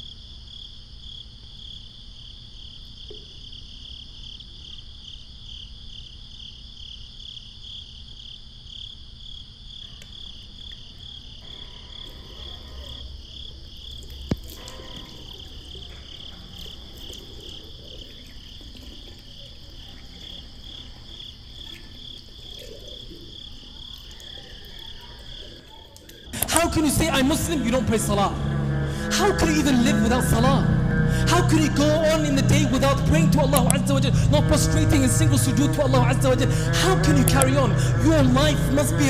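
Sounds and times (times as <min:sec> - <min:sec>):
crickets trilling: 0:00.0 - 0:39.0
water splashing in a sink: 0:13.5 - 0:26.3.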